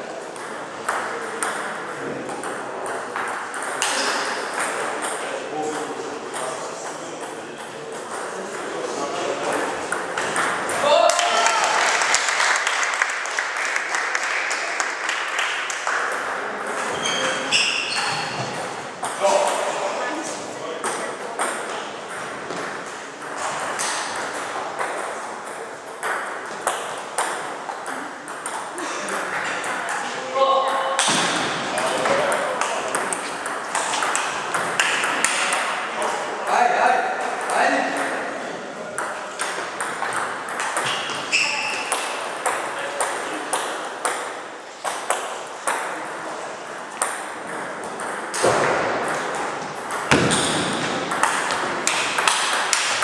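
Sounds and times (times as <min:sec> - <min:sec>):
table tennis balls pinging: 0:00.0 - 0:11.3, 0:14.8 - 0:20.0, 0:20.8 - 0:36.3, 0:37.2 - 0:53.0
table tennis ball clicking: 0:51.1 - 0:53.0.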